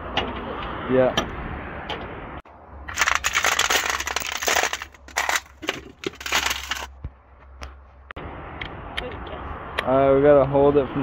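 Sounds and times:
metal tools clattering in drawer: 2.9 - 6.9.

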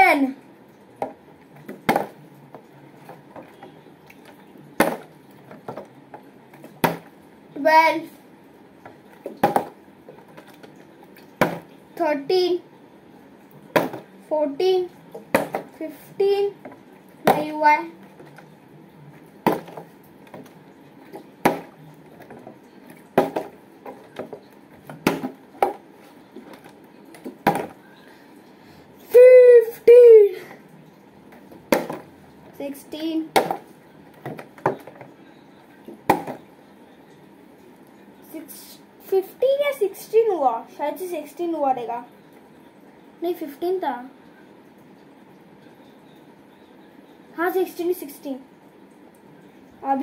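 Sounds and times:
plastic bottle landing on floor: 9.3 - 9.8, 23.2 - 23.6, 36.1 - 36.4
plastic bottle thudding on floor: 9.3 - 9.8, 23.2 - 23.6, 24.2 - 25.8, 27.2 - 27.8, 31.7 - 32.1, 36.1 - 36.4.

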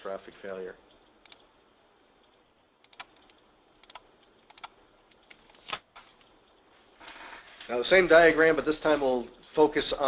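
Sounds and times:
computer keyboard clicks: 2.2 - 5.8.

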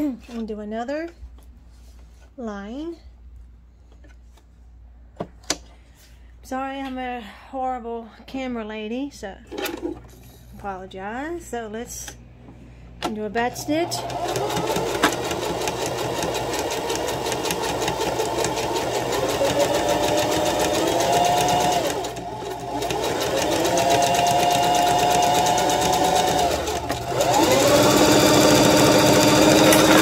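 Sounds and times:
sewing machine stitching: 13.5 - 30.0.

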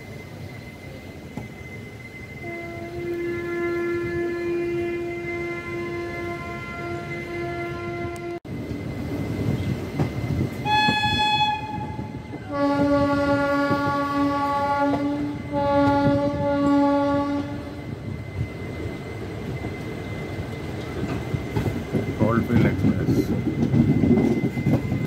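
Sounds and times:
rumble of train coaches: 0.0 - 25.0
locomotive horn blasts: 2.4 - 8.4, 10.6 - 17.8.

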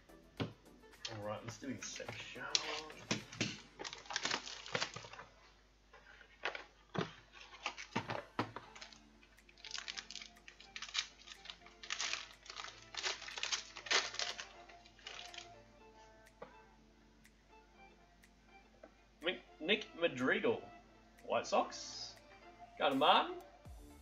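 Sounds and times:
faint background music: 0.0 - 24.0
foil wrapper crinkling: 2.4 - 15.5.

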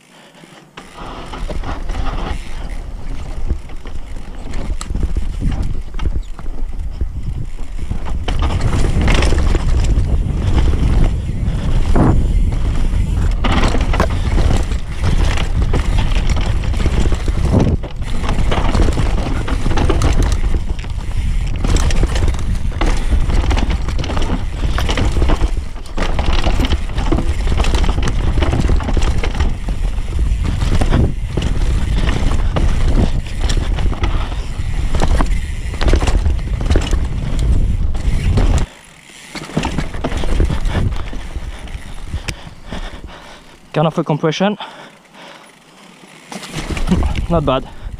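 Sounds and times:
tyres scraping dirt: 0.0 - 44.2, 44.8 - 47.9
bike rattling over rocks: 0.1 - 47.9
wind noise on microphone: 1.0 - 38.7, 39.6 - 43.4, 46.6 - 47.9.

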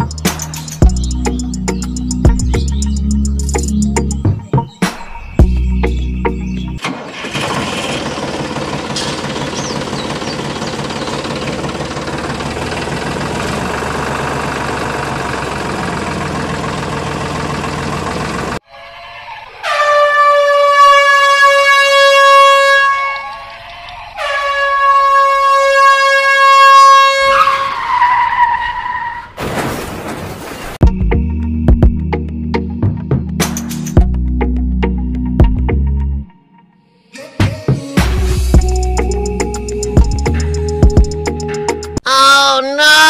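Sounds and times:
engine running: 6.5 - 18.6, 38.2 - 42.0
air horn blasts: 19.6 - 23.4, 24.2 - 28.0.

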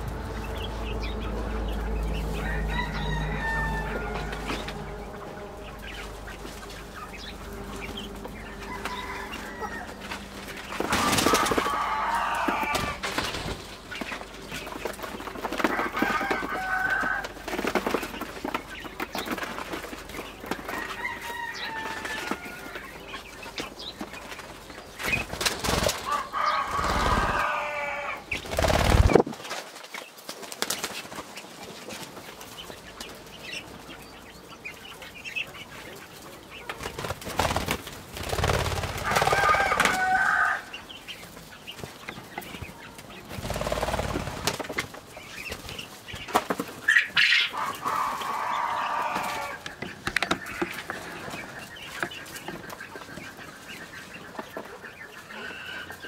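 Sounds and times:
hens clucking: 0.0 - 56.0
rooster crowing: 1.0 - 6.0, 7.7 - 13.2, 15.6 - 17.4, 20.6 - 23.1, 26.0 - 28.3, 38.9 - 40.8, 47.4 - 49.6.

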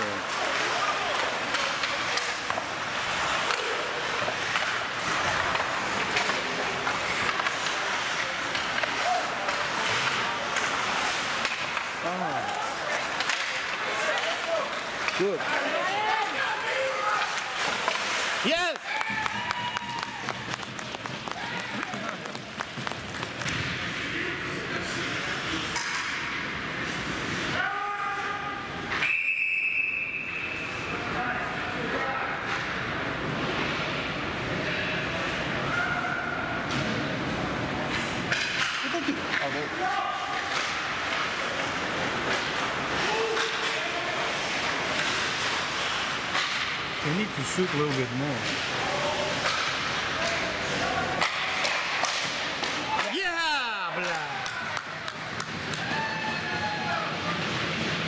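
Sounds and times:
skate blades scraping ice: 0.0 - 24.1, 37.8 - 58.0
sticks and puck clacking: 0.0 - 24.1, 25.1 - 27.6, 36.6 - 58.0.

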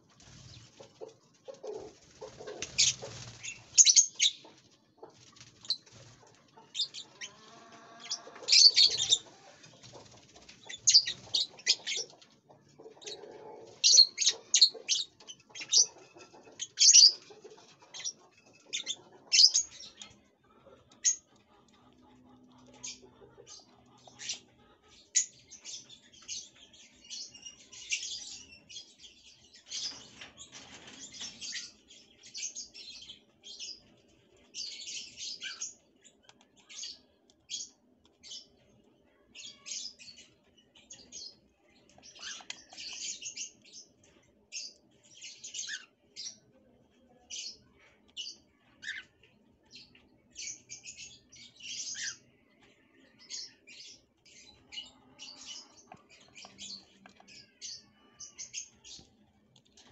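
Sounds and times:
parrots chirping: 6.6 - 9.6, 12.9 - 20.1.

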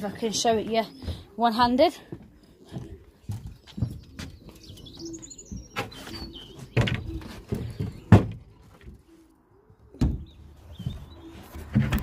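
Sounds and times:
pigeons cooing and peeping: 0.0 - 12.0
wooden board knocking and scraping: 5.7 - 9.0.

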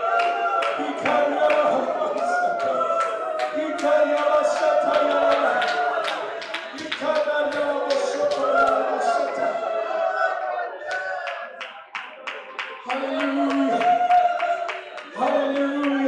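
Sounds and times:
group singing worship song: 0.0 - 11.5.

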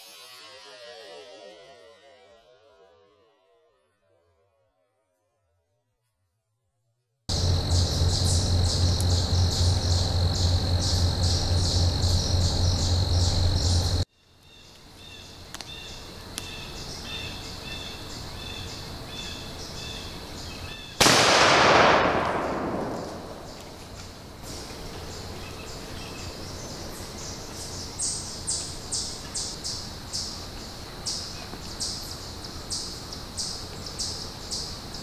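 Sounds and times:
high chirping in woods: 7.3 - 21.6, 22.2 - 35.0
shotgun shot: 21.0 - 23.9.

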